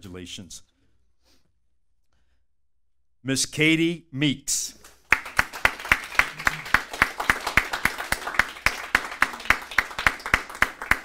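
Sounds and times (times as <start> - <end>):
people clapping: 4.8 - 11.0.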